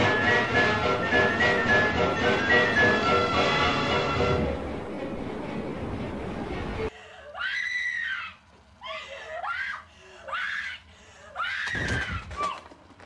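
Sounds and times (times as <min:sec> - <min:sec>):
high-pitched screams: 0:07.2 - 0:12.6.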